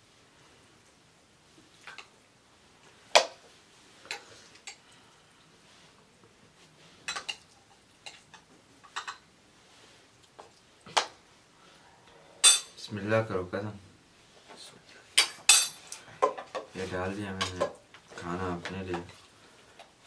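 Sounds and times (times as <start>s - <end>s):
cutlery clinking on plates: 12.4s - 12.8s, 15.2s - 16.7s.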